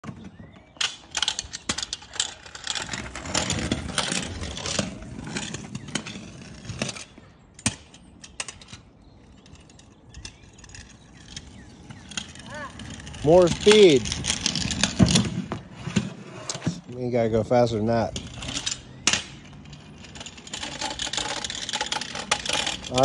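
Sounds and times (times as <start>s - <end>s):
kick scooter rattling on concrete: 0.0s - 23.0s.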